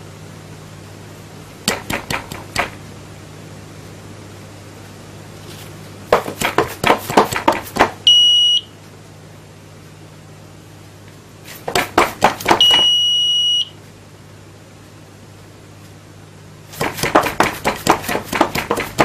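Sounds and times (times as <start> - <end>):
low steady hum: 0.0 - 19.0
high steady buzzer beep: 8.1 - 8.7, 12.6 - 13.8.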